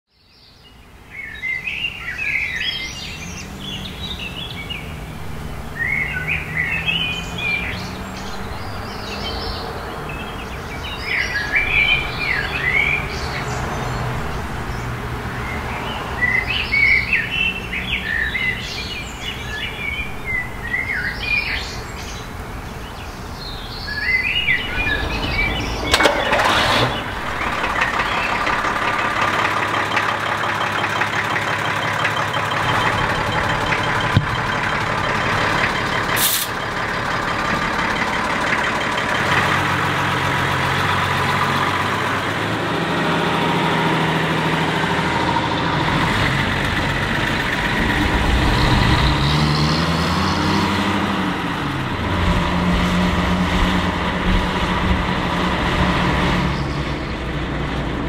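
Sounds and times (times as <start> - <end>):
birds singing chirping phrases: 0.1 - 45.0, 56.4 - 57.8
steady mechanical drone: 2.4 - 49.3.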